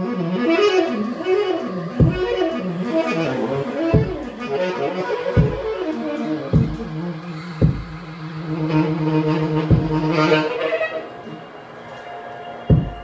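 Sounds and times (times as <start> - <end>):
saxophone sliding tones: 0.0 - 13.0
deep electronic kick thumps: 2.0 - 2.5, 3.9 - 4.4, 5.4 - 5.8, 6.5 - 6.9, 7.6 - 8.1, 9.7 - 10.1, 12.7 - 13.0.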